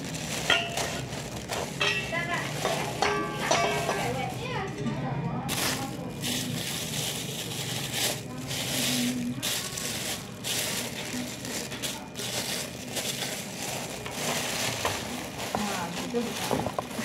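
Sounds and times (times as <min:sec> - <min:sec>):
plastic bags crinkling: 0:00.0 - 0:04.8, 0:05.4 - 0:17.0.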